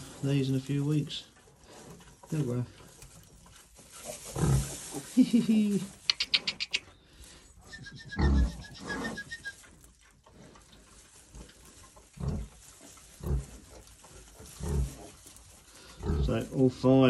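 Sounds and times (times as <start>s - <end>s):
piglets grunting: 7.8s - 9.5s.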